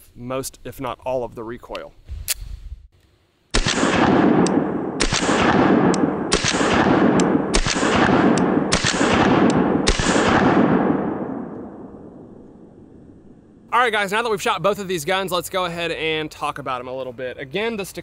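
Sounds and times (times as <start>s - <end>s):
pistol shots: 3.5s - 11.8s
heavy rolling boom: 3.6s - 13.7s.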